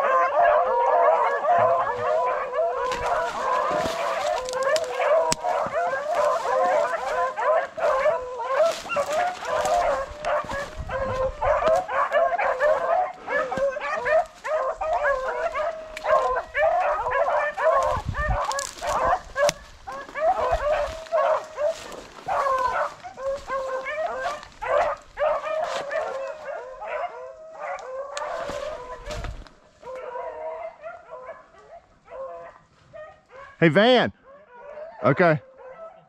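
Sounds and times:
hounds baying and yelping: 0:00.0 - 0:36.0.

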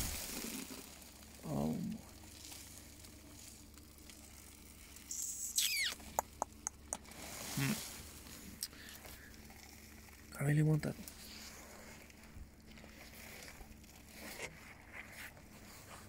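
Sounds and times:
plastic packaging crackling: 0:00.0 - 0:15.6
high squeak: 0:05.1 - 0:06.0
low vocal sounds: 0:06.2 - 0:07.9.

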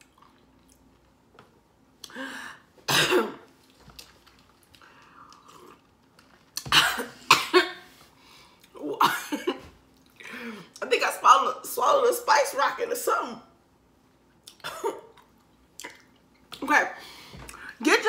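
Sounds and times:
woman coughing: 0:02.9 - 0:03.5, 0:06.7 - 0:07.9, 0:09.0 - 0:09.7, 0:14.6 - 0:15.1.

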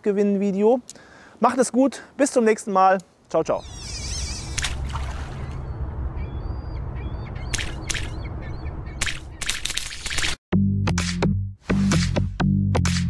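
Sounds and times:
low rumble: 0:04.7 - 0:09.0
sharp cracks: 0:07.5 - 0:08.2.

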